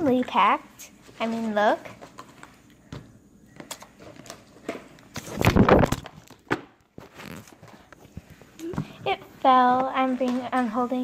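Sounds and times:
phone falling over clatter: 5.2 - 6.7.

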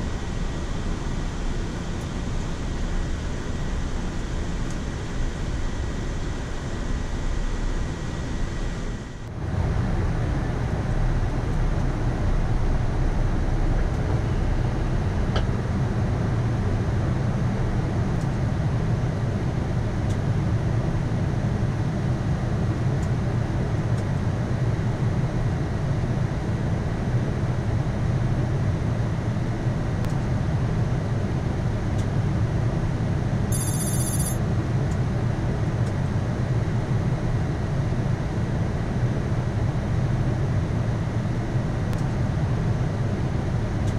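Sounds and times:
aircraft cockpit rumble: 0.0 - 43.9
high pulsing chime: 33.5 - 34.4.

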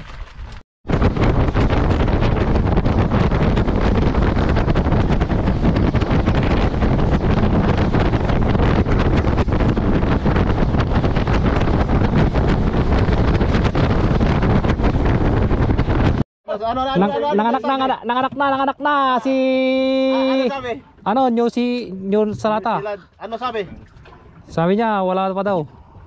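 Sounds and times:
boat engine running fast: 0.0 - 16.2
hull slapping through waves: 0.0 - 16.2
wind buffeting microphone: 0.0 - 26.0.

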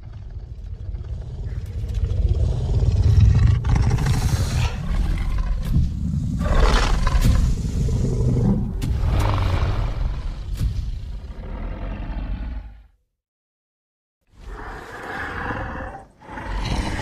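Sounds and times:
creature growling and roaring: 0.0 - 10.5, 14.4 - 17.0.

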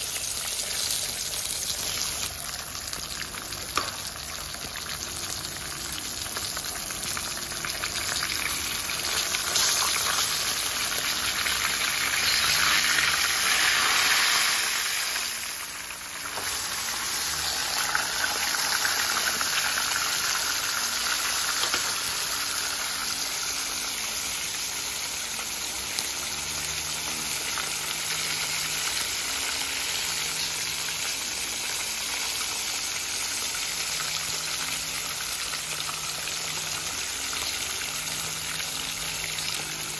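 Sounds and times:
fish sizzling in hot oil: 0.0 - 39.9.

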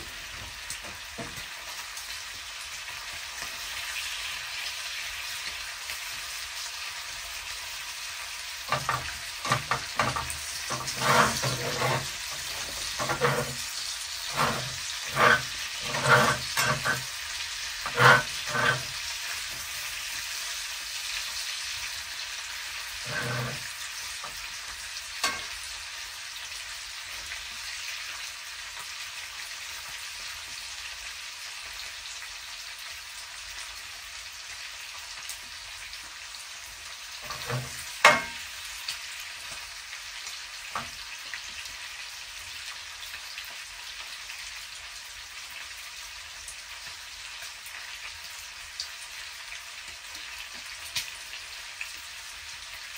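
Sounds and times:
bacon sizzling in a pan: 0.0 - 52.9.

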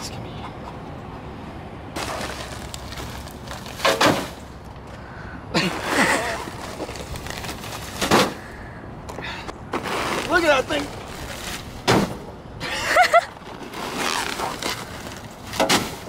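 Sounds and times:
plastic bags crinkling: 6.4 - 8.1.

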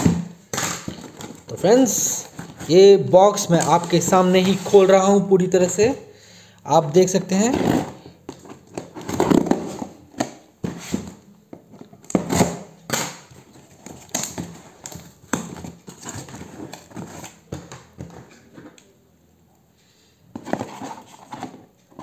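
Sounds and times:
cardboard box being opened: 20.4 - 21.7.

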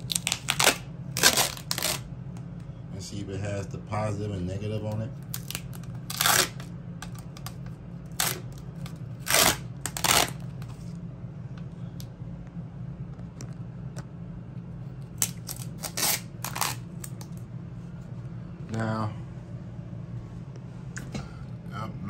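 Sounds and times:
tape peeling in tearing rips: 0.0 - 2.1, 5.2 - 10.9, 15.0 - 17.4
steady low hum: 0.0 - 22.0.

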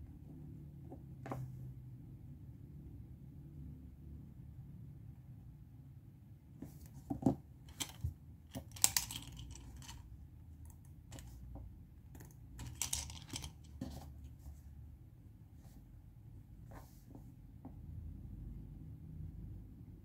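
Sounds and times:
pens clicking and tapping on desk: 7.1 - 14.1.

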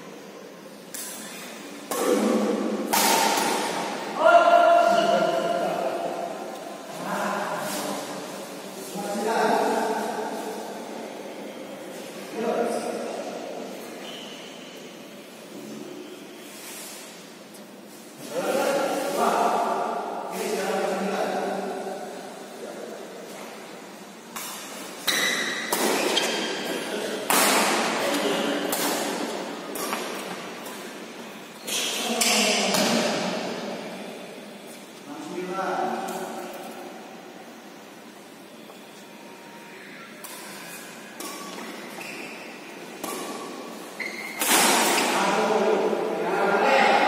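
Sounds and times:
rackets hitting shuttlecock: 2.8 - 4.0, 24.3 - 30.9, 43.0 - 45.2.

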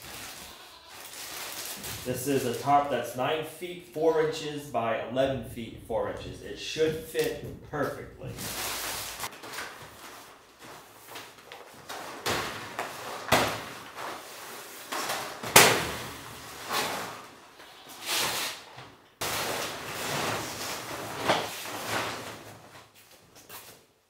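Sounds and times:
plastic tarp crinkling: 0.0 - 2.8, 8.4 - 17.4, 19.2 - 23.0
tarp snapping: 19.2 - 22.7.

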